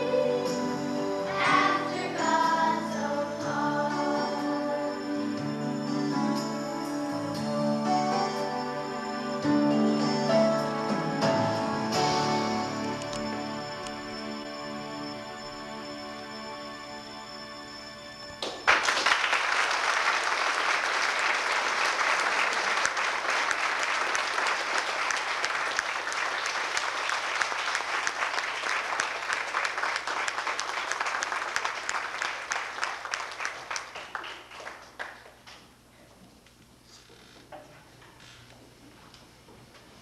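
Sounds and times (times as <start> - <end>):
recorded music: 0.0 - 18.6
audience applause: 18.4 - 35.4.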